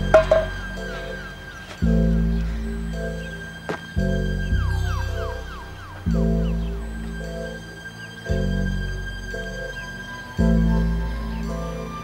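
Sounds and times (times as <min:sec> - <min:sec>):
deep bass note: 0:00.0 - 0:09.6
high held tone: 0:00.0 - 0:11.7.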